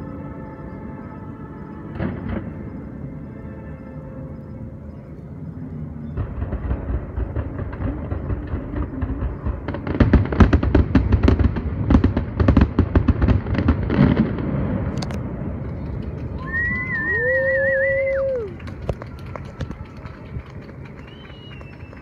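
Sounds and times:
distant fireworks bangs and crackles: 0.0s - 4.5s, 5.5s - 22.0s
wavering whistle-like tone: 16.4s - 18.6s, 20.8s - 22.0s.

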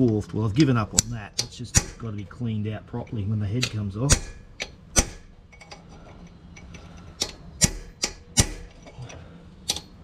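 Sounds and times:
hammer tapping on metal: 1.0s - 2.1s, 3.6s - 5.4s, 7.2s - 8.8s.

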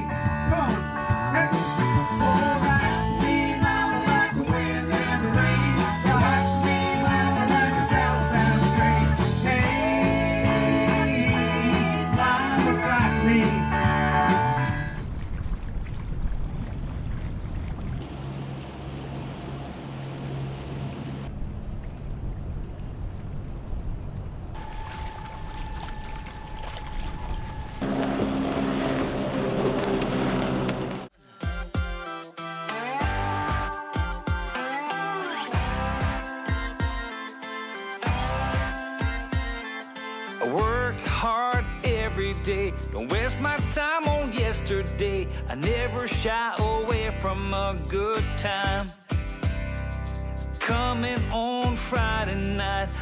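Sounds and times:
rock band playing: 0.0s - 14.9s, 31.5s - 41.8s
man singing into a microphone: 1.3s - 14.3s, 40.4s - 49.1s, 50.6s - 53.0s
boat engine running: 14.6s - 31.2s
louder engine: 27.3s - 31.1s.

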